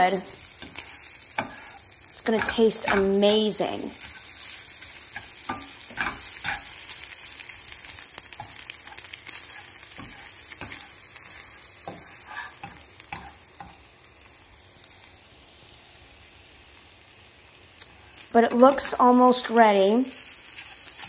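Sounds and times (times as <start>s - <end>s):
food sizzling in a frying pan: 0.0s - 21.0s
spatula scraping a pan: 0.5s - 3.2s, 4.0s - 7.0s, 7.9s - 13.9s, 20.2s - 21.0s.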